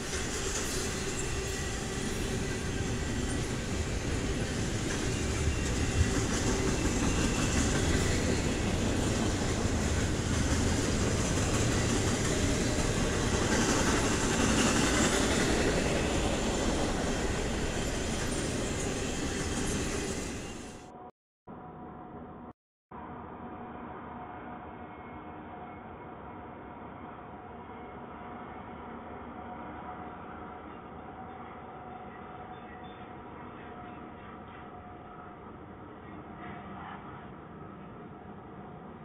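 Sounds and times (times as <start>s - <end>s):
train wheels on rails: 0.0s - 21.0s.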